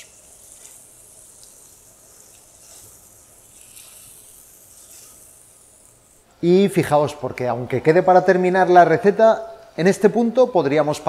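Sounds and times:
faint frying sizzle: 0:00.0 - 0:06.6.

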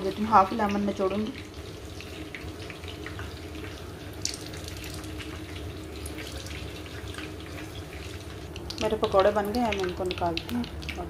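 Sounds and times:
food deep-frying in oil: 0:00.0 - 0:11.0.

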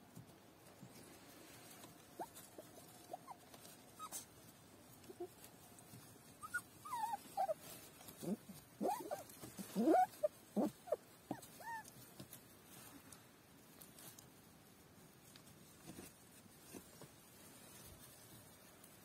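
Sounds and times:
puppies whimpering: 0:06.4 - 0:07.6, 0:08.2 - 0:11.9.

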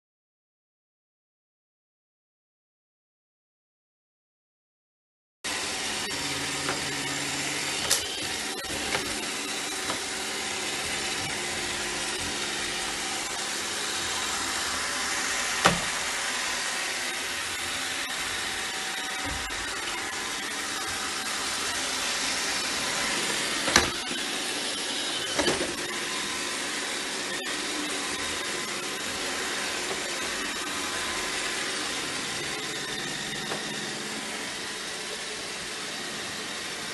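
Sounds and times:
robot vacuum whirring: 0:05.5 - 0:36.9.

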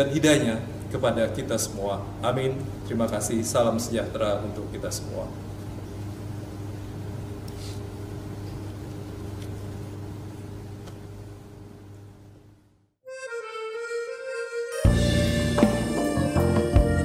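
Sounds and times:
air conditioner hum: 0:00.0 - 0:13.0
music with held chord: 0:13.0 - 0:17.0.

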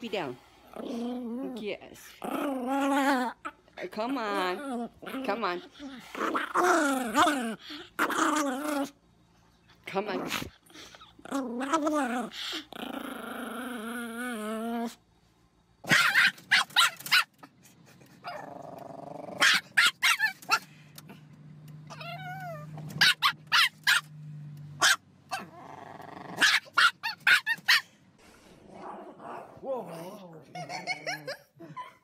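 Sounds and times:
low steady hum: 0:00.0 - 0:26.8
dog growling: 0:00.5 - 0:09.0, 0:10.0 - 0:15.0, 0:18.3 - 0:19.5, 0:25.3 - 0:26.5, 0:28.3 - 0:31.4
dog barking: 0:19.4 - 0:20.6, 0:23.0 - 0:24.1, 0:24.8 - 0:25.4, 0:26.4 - 0:27.8
dog whining: 0:21.9 - 0:24.1.

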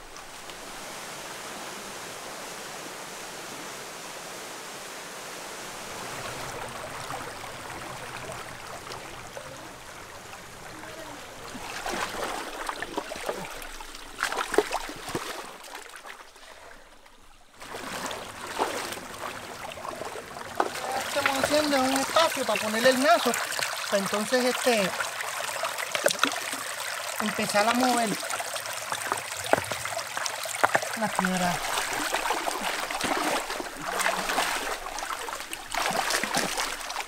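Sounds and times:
water splashing: 0:05.6 - 0:37.0
river water rushing over rocks: 0:17.6 - 0:37.0.

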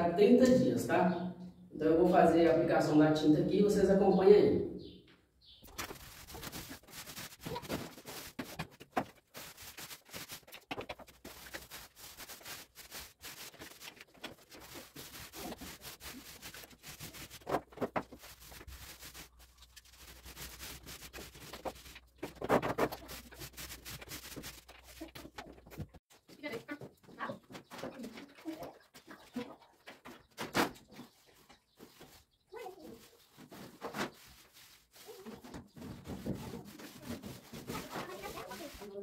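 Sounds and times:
paint roller rubbing on wall: 0:05.8 - 0:25.3, 0:31.9 - 0:39.0.

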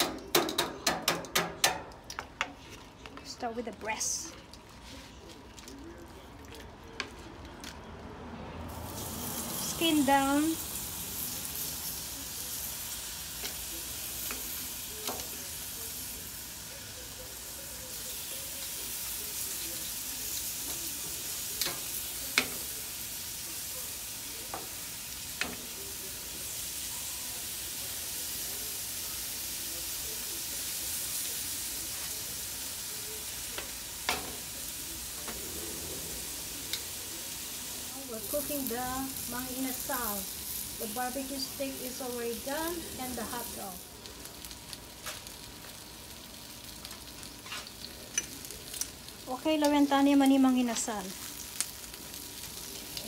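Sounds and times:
meat sizzling on a grill: 0:02.6 - 0:53.0
tongs clicking against grill: 0:21.6 - 0:22.6, 0:48.1 - 0:49.0.

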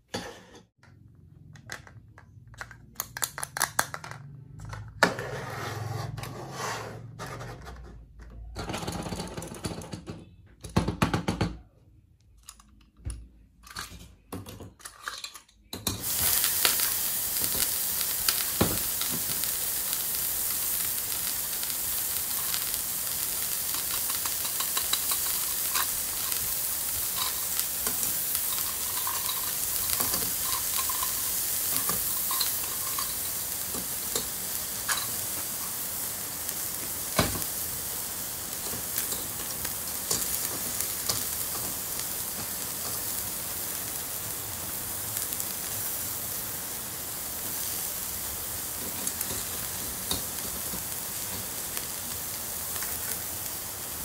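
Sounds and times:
electronic sizzling hiss: 0:16.0 - 0:54.0.

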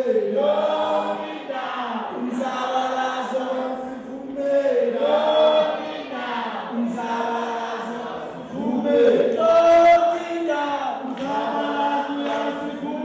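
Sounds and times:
group singing a cappella: 0:00.0 - 0:13.0.

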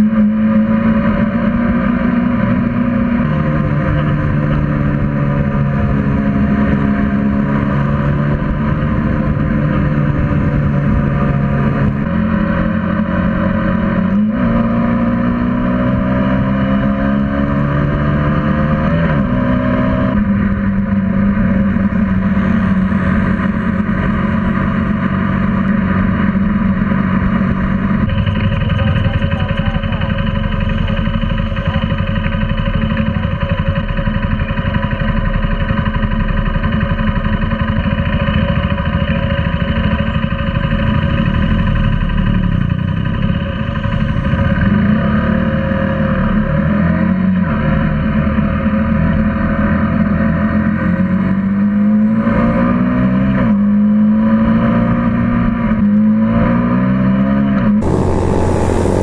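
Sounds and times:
motorcycle engine: 0:01.0 - 0:35.8, 0:57.8 - 0:59.0
wind noise: 0:57.8 - 0:59.0.

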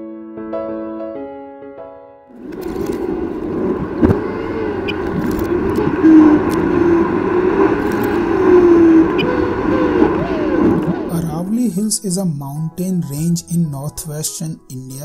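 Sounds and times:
car engine drone and road noise: 0:02.4 - 0:11.8.

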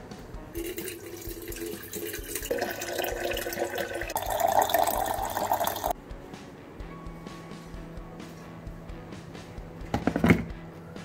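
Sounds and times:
water running into kettle: 0:00.6 - 0:05.9.

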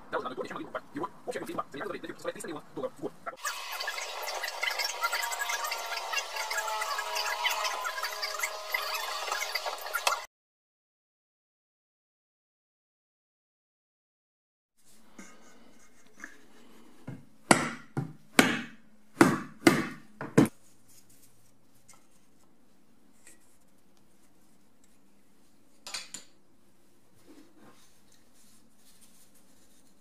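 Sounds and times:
hammer knocking on wood: 0:17.1 - 0:20.5.

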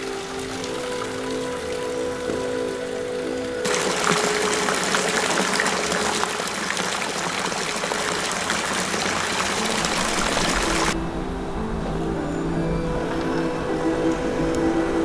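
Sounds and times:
running water splashing: 0:00.0 - 0:11.0
music: 0:00.0 - 0:15.0.

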